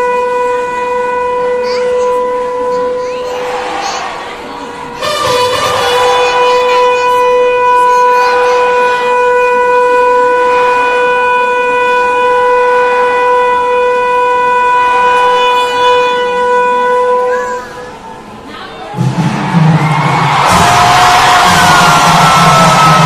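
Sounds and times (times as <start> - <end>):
amplified command shout: 20.2 - 23.0.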